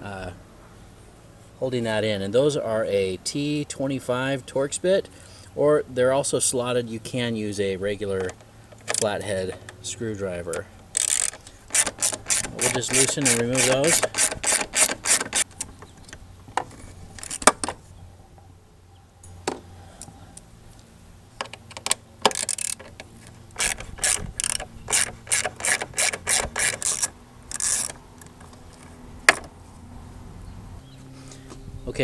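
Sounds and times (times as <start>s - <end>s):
hand ratchet clicking: 8.2s - 9.7s, 10.9s - 15.5s, 21.4s - 29.4s.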